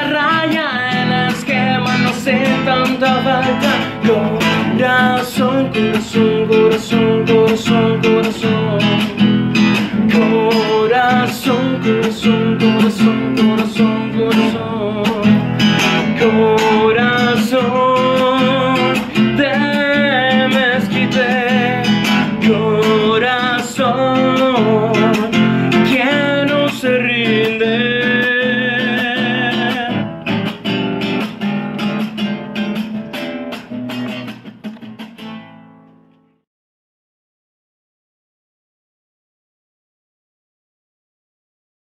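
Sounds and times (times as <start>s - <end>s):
person singing: 0.0s - 30.6s
strummed acoustic guitar: 0.0s - 36.4s.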